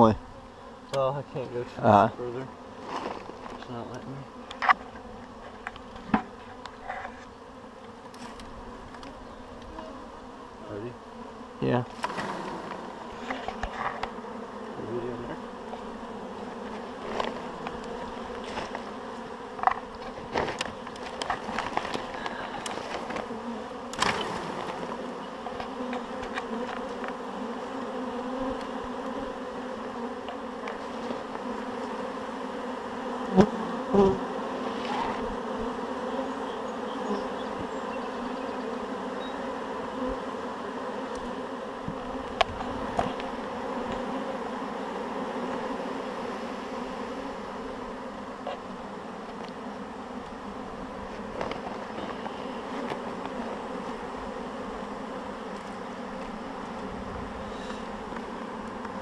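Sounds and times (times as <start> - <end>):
bee swarm buzzing: 0.0 - 59.0.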